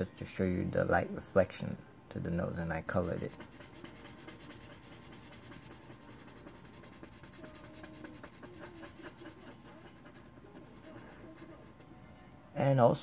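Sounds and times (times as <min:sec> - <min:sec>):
marker scratching on paper: 0:02.9 - 0:11.9.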